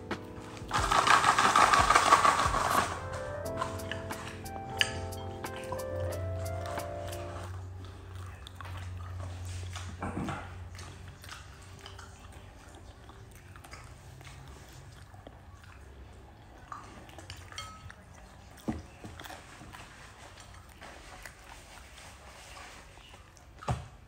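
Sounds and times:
person chewing french fries: 0:00.0 - 0:10.0.

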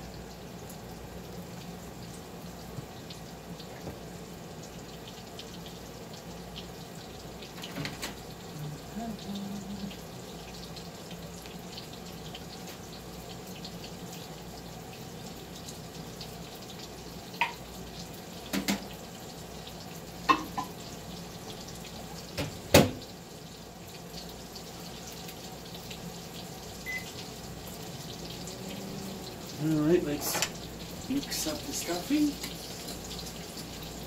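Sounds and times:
meat frying in a pan: 0:00.0 - 0:34.0
tap water running into sink: 0:02.7 - 0:04.1, 0:04.8 - 0:08.4, 0:16.7 - 0:19.0, 0:20.2 - 0:23.2, 0:29.5 - 0:34.0
dishes knocking: 0:20.3 - 0:20.7.

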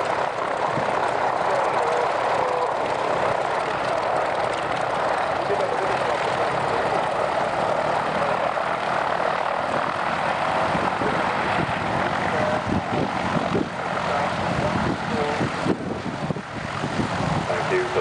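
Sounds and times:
propeller aircraft engines droning: 0:00.0 - 0:18.0
wind buffeting microphone: 0:00.0 - 0:18.0.

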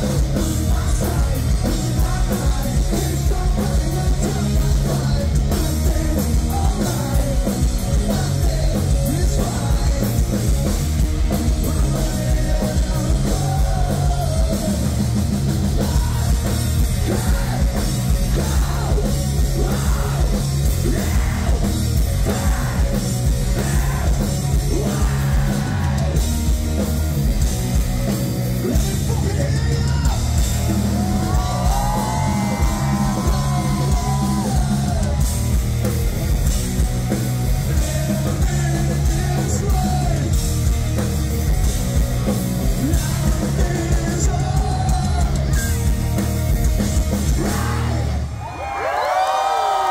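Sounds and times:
live rock band: 0:00.0 - 0:49.9
singer yelling vocals: 0:15.8 - 0:26.2, 0:28.6 - 0:35.3, 0:37.6 - 0:40.4, 0:47.2 - 0:49.9.

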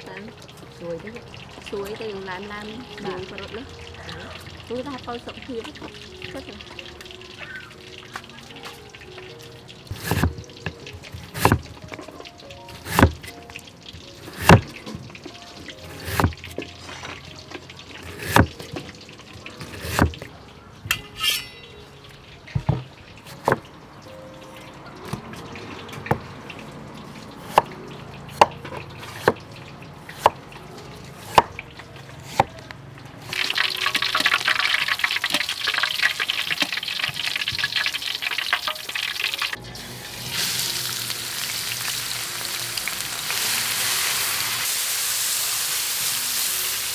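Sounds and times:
ginger sizzling in a wok: 0:00.0 - 0:46.9
cleaver chopping on wooden board: 0:10.0 - 0:10.4, 0:11.3 - 0:11.6, 0:12.9 - 0:13.2, 0:18.2 - 0:18.6.

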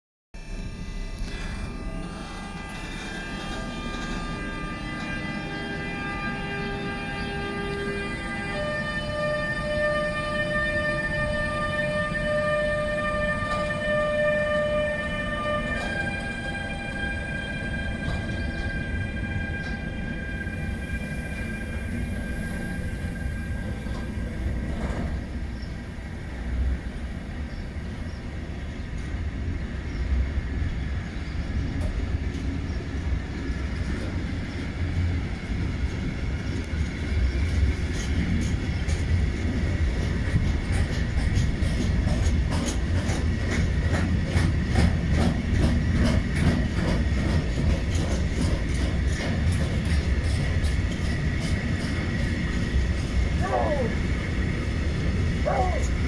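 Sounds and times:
electric locomotive whine: 0:00.4 - 0:56.0
wagons rumbling: 0:47.2 - 0:56.0.

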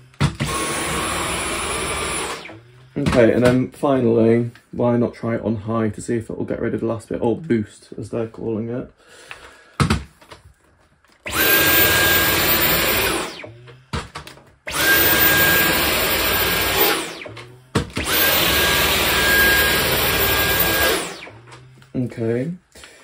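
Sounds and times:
vacuum cleaner running: 0:00.2 - 0:02.8, 0:11.2 - 0:13.7, 0:14.7 - 0:21.8.

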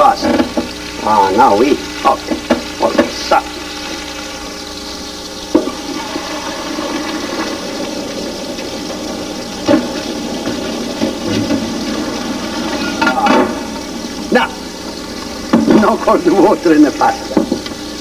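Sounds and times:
water pouring into sink: 0:00.0 - 0:18.0
metal pot clank: 0:09.6 - 0:13.8.

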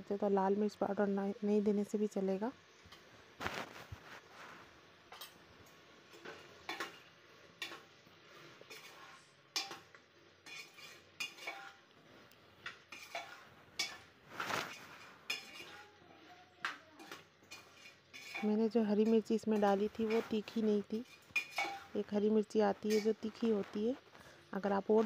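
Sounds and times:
metal spoon scraping a pot: 0:08.6 - 0:09.8, 0:10.4 - 0:11.8, 0:12.9 - 0:15.9, 0:17.0 - 0:22.0, 0:22.8 - 0:23.7.

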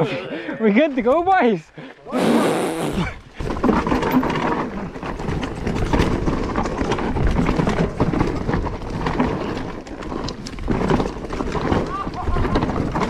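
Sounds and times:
bike clattering over bumps: 0:03.4 - 0:13.0.

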